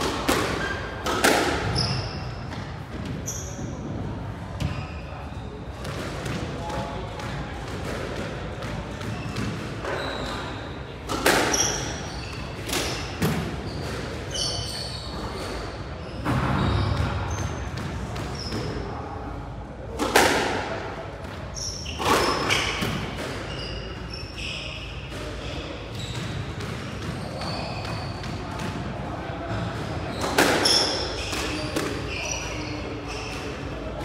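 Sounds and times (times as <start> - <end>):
squash ball hitting walls: 0.0 - 4.8, 5.7 - 14.3, 15.1 - 18.8, 19.9 - 24.1, 25.0 - 32.5
shoes squeaking on wooden floor: 9.1 - 10.6, 26.0 - 28.2.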